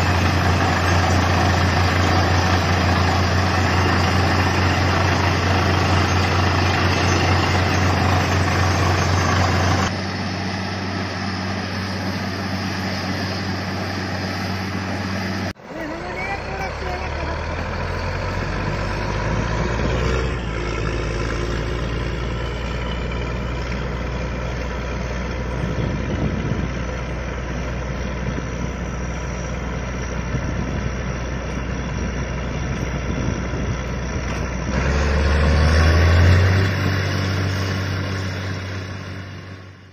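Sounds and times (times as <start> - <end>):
drilling rig engine drone: 0.0 - 39.9.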